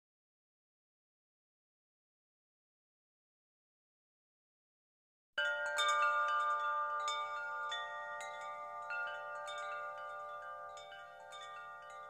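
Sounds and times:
metal chimes ringing: 0:05.4 - 0:12.0.

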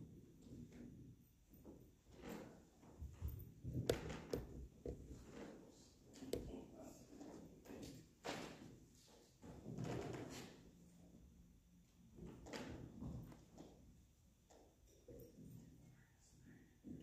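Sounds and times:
handling knocks clicks and thumps: 0:03.0 - 0:06.7.

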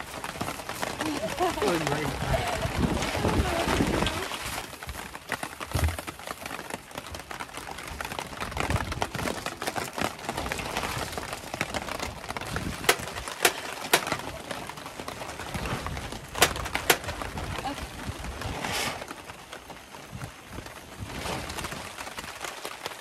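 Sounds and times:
rain on a tarp: 0:00.0 - 0:23.0
wind: 0:00.0 - 0:23.0
sharp clicks and knocks: 0:12.8 - 0:14.3, 0:16.4 - 0:17.2.

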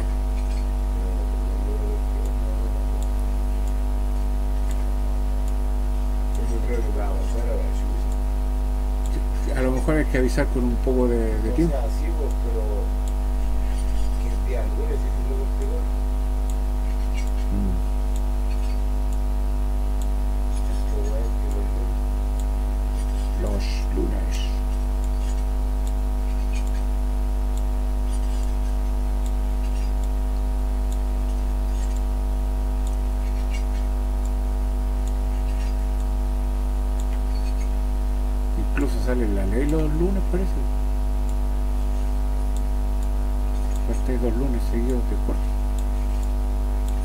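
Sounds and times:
steady low hum: 0:00.0 - 0:47.0
faint murmured voices: 0:00.5 - 0:03.4.

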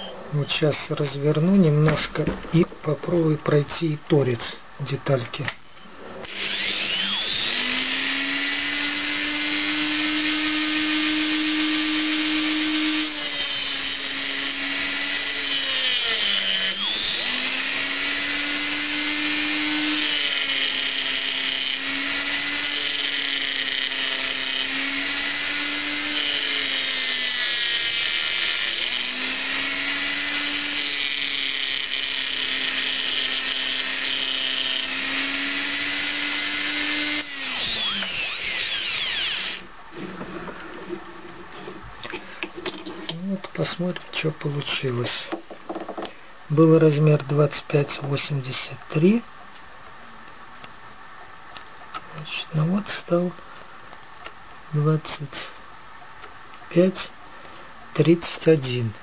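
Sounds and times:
rotary tool grinding metal: 0:05.8 - 0:45.2.

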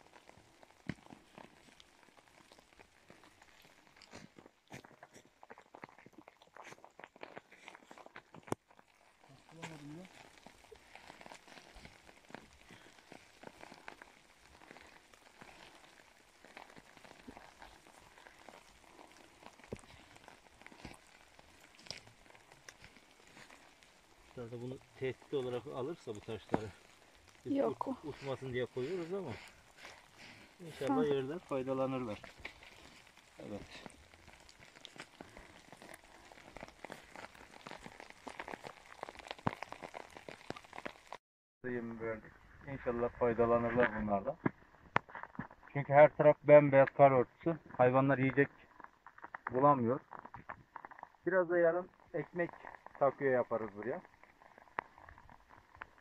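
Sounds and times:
water dripping from trees: 0:00.0 - 0:41.2.

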